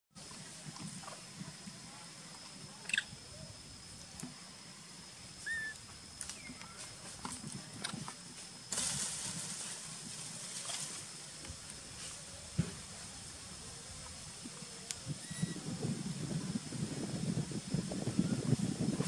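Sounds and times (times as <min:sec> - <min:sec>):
hissing rustle: 0:00.2 - 0:19.0
short chirps and squeaks: 0:02.8 - 0:03.2, 0:05.4 - 0:05.8.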